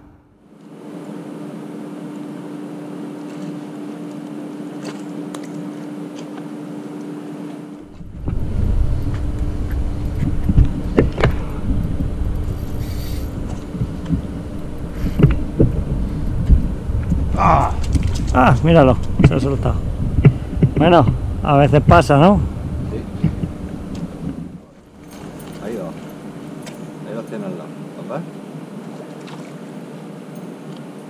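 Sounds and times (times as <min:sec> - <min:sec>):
steady low hum with hiss: 0:00.0 - 0:31.0
uneven low rumble: 0:07.8 - 0:26.6.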